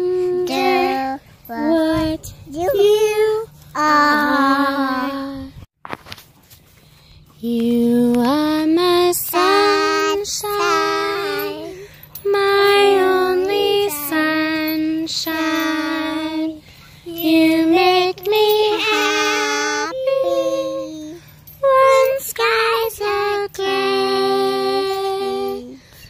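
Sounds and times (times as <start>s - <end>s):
toddler and woman singing: 0.0s - 5.6s, 7.4s - 26.0s.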